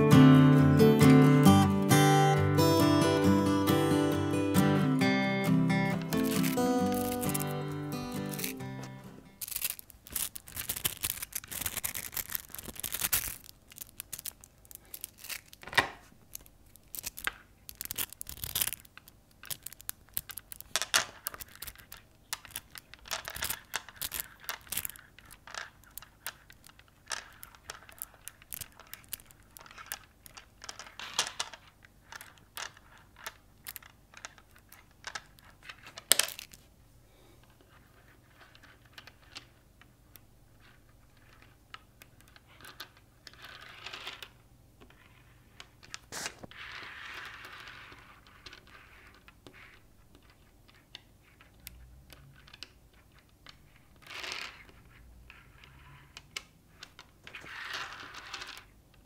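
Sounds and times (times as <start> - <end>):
magnetic balls clicking: 4.2 - 36.7
magnetic balls snapping together: 5.8 - 36.7.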